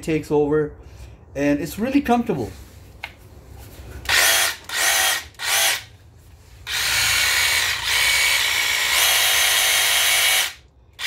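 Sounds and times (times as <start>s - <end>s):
jigsaw motor and blade whine: 4.1s - 5.9s, 6.6s - 11.0s.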